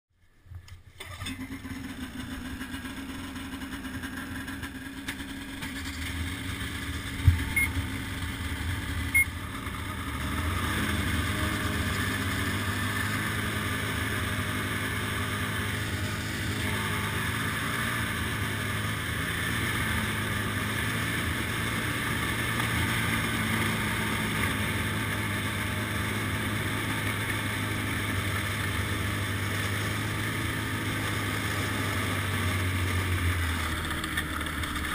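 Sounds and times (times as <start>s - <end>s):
snowmobile engine running: 1.2s - 34.9s.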